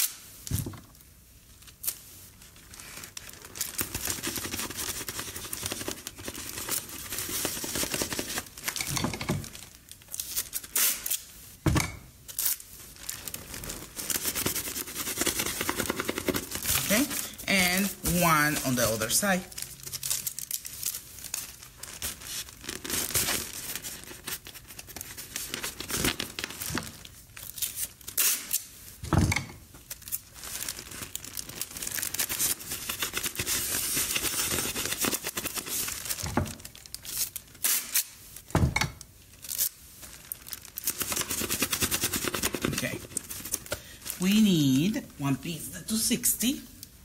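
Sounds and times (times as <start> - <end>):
adhesive tape being pulled: 0.0 - 0.2, 10.1 - 11.3, 12.3 - 12.6, 27.4 - 28.8, 37.1 - 38.2
foil balloon crinkling: 1.5 - 11.6, 12.2 - 29.0, 29.7 - 38.5, 39.1 - 45.2.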